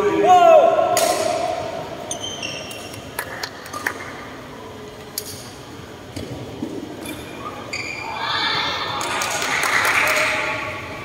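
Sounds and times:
indoor sports hall background: 0.0 - 11.0
shoes squeaking on court floor: 2.0 - 3.1, 7.0 - 8.1.

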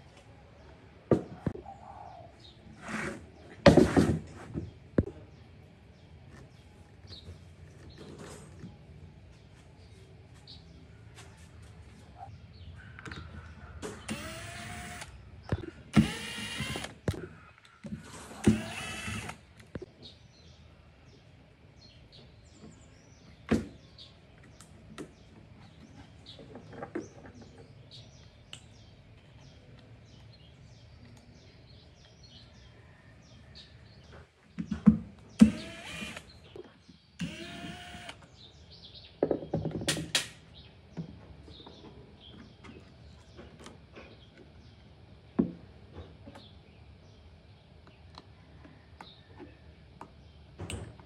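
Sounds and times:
cordless drill spinning: 14.1 - 15.1, 15.9 - 17.0, 18.4 - 19.4, 35.4 - 36.3, 37.2 - 38.2.

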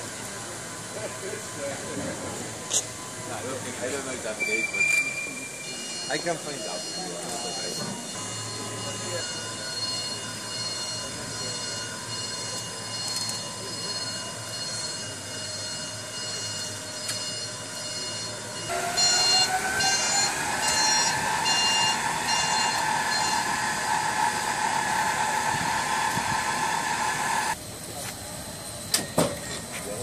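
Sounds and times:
short beeps: 4.3 - 24.4
electric motor whining: 18.6 - 27.6.

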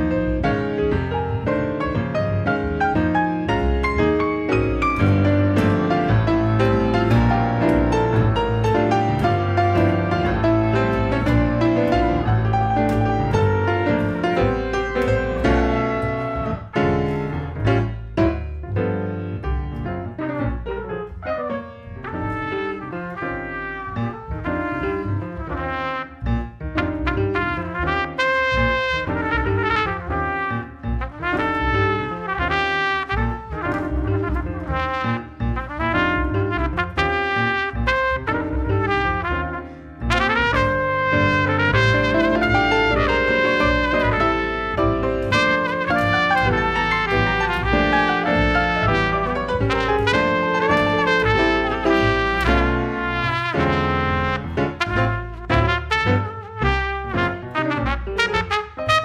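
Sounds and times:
jazz piano: 0.0 - 59.0
plucked double bass: 0.0 - 59.0
muted trumpet: 27.0 - 59.0.

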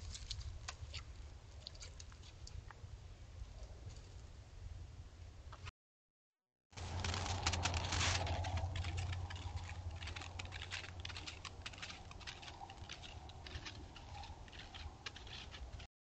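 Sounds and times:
hoof steps crunching on snow: 6.8 - 15.9.

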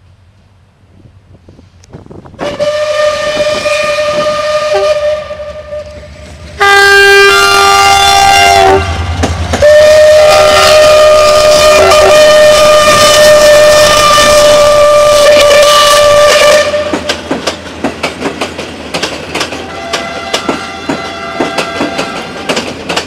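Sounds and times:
train wheels rumbling: 0.0 - 23.0
steam locomotive whistle: 2.4 - 17.2, 19.5 - 22.7
train horn blasts: 2.4 - 17.2, 19.6 - 22.6.

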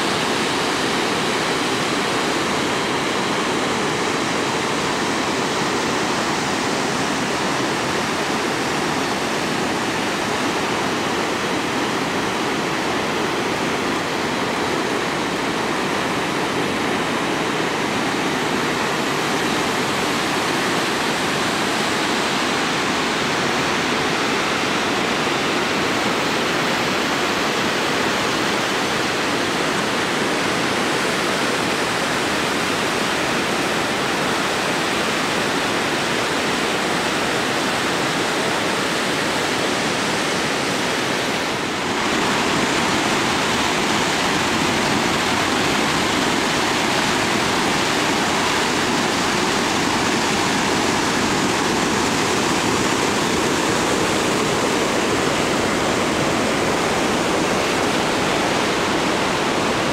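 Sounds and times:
waterfall roaring: 0.0 - 59.9
whitewater pouring through gorge: 0.0 - 59.9.

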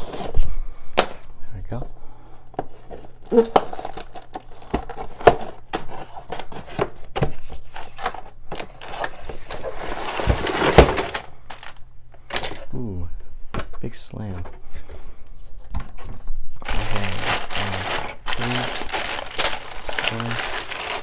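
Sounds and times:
cardboard box rustling scrape: 8.8 - 11.2.

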